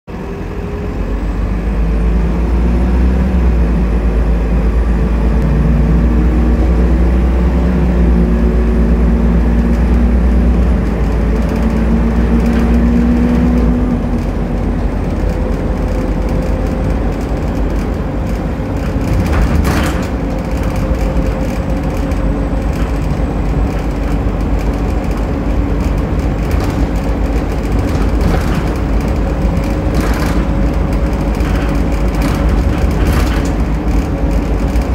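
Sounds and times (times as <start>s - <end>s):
bus diesel engine: 0.1s - 34.9s
rising whine: 0.2s - 16.9s.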